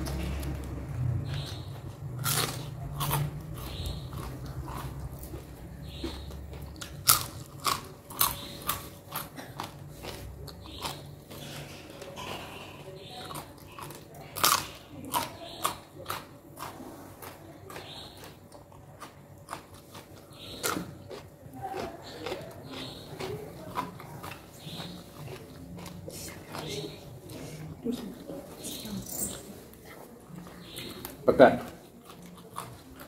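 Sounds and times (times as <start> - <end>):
crunching bites of raw vegetables: 0.0 - 12.2, 13.0 - 26.6.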